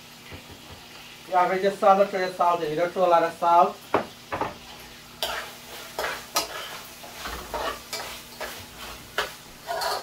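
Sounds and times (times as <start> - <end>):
beans sizzling while frying: 0.0 - 10.0
metal spoon scraping a pot: 5.2 - 10.0.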